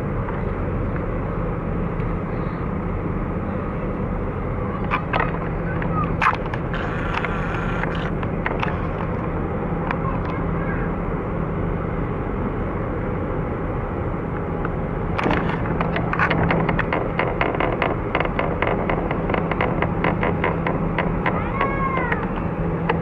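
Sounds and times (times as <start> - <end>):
ship engines rumbling: 0.0 - 23.0
sharp clicks: 4.8 - 9.1.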